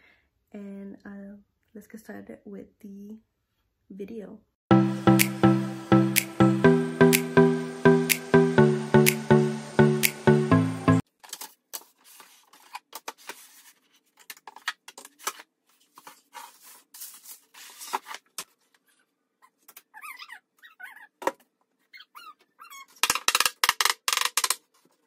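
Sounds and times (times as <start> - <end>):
intro music: 4.7 - 11.0.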